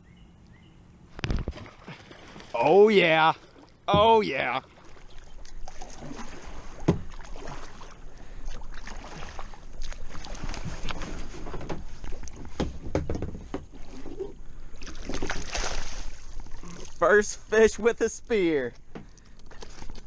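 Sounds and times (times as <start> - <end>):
paddle splashing in water: 1.1 - 17.0
water splashing: 1.1 - 20.0
knocks on plastic hull: 6.8 - 7.1, 12.5 - 13.7.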